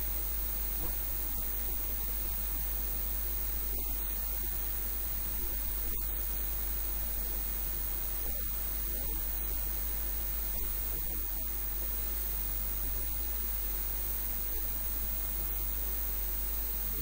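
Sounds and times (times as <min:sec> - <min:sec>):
electrical hiss: 0:00.0 - 0:17.0
low mains hum: 0:00.0 - 0:17.0.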